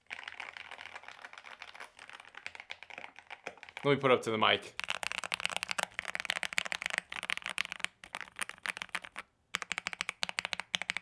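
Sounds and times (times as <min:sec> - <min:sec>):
mechanical keyboard typing: 0:04.7 - 0:11.0.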